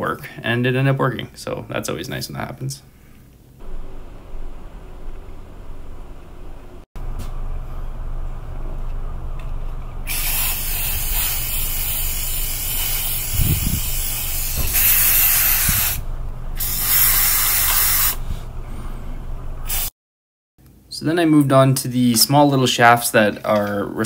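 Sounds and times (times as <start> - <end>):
low rumble: 3.6 - 16.9, 18.2 - 19.7
aerosol can spraying: 10.1 - 16.0, 16.6 - 18.2, 19.7 - 19.9.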